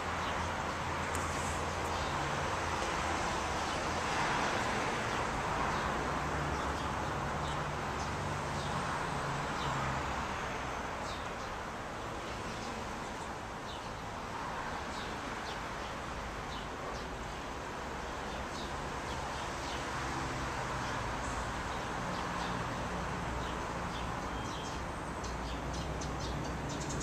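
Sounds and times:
traffic rumble: 0.0s - 27.0s
birds chirping: 20.8s - 27.0s.

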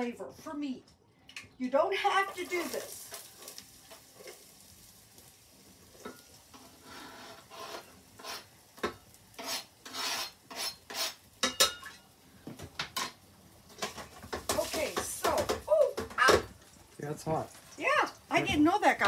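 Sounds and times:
onions sizzling faintly: 1.6s - 19.0s
spatula scraping metal pot: 6.5s - 11.9s.

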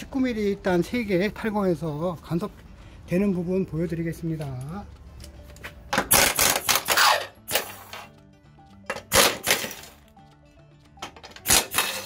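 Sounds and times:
impact wrench hammering: 11.1s - 12.0s.

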